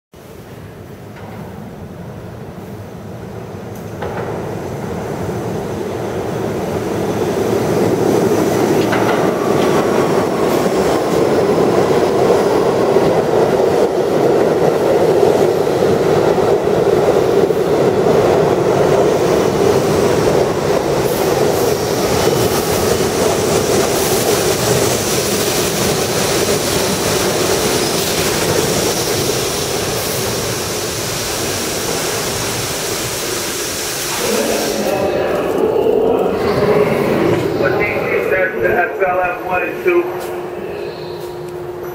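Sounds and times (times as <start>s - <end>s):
train wheels rumbling on rails: 0.3s - 41.9s
train wheels squealing: 40.7s - 41.9s.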